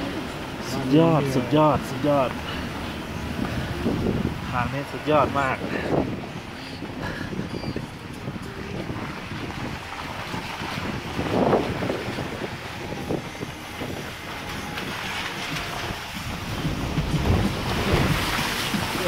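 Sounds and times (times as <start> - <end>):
vehicle engine running: 0.0 - 19.0
wind buffeting microphone: 0.0 - 19.0.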